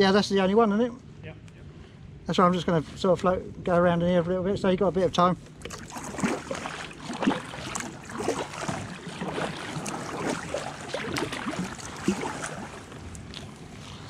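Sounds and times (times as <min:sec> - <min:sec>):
water splashes and drips: 0:05.6 - 0:13.6.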